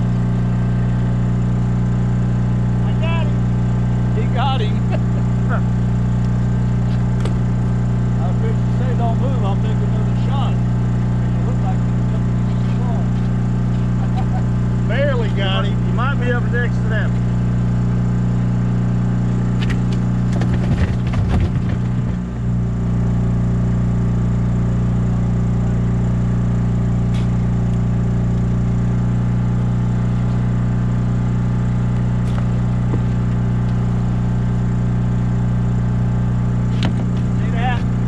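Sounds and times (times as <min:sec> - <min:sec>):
generator engine droning: 0:00.0 - 0:38.0
scraping and knocking on deck: 0:20.2 - 0:22.3.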